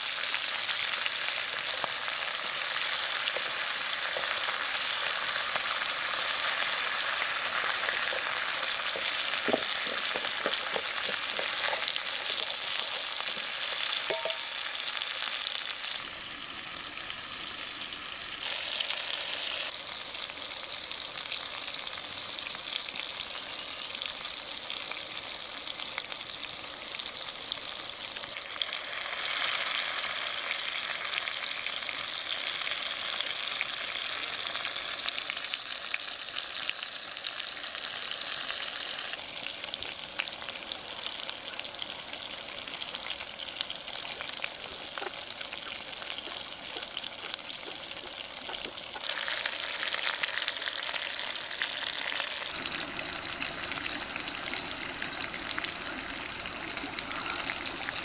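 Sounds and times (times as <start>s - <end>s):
food sizzling in a wok: 0.0s - 58.0s
chopsticks tapping on a pan: 8.9s - 14.6s.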